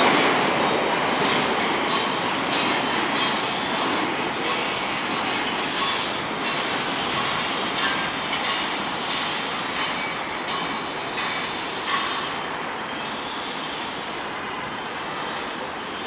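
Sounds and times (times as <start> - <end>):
wheels clicking over rail joints: 0.0 - 12.4
train wheels rumbling on track: 0.0 - 16.0.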